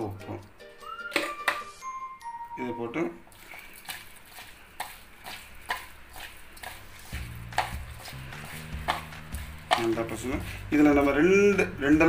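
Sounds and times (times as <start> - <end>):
hand squishing raw prawns: 3.3 - 11.8.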